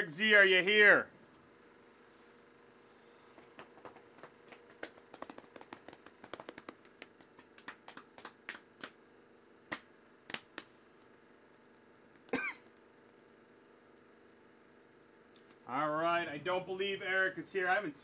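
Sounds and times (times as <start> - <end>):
computer keyboard typing: 4.8 - 7.0, 11.4 - 15.6
person coughing: 12.3 - 12.7.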